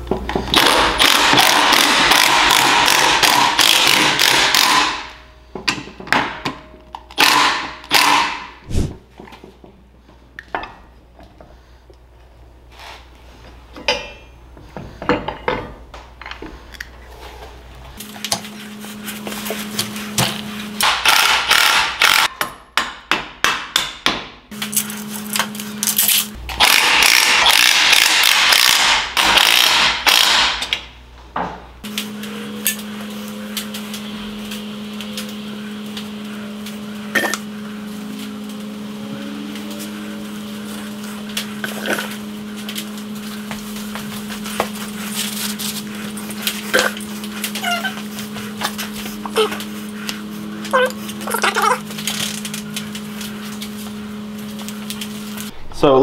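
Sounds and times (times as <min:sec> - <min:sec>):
cordless power tool bursts: 0:26.6 - 0:30.6
steady low hum: 0:30.8 - 0:56.0.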